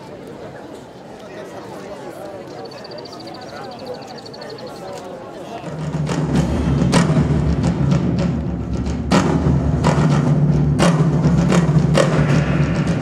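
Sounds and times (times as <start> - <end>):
percussion music: 5.6 - 13.0
loud drum strikes: 5.7 - 13.0.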